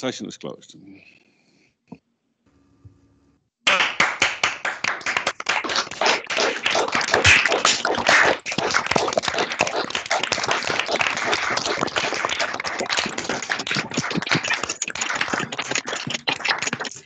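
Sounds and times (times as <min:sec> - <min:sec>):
people clapping: 0:03.7 - 0:17.0.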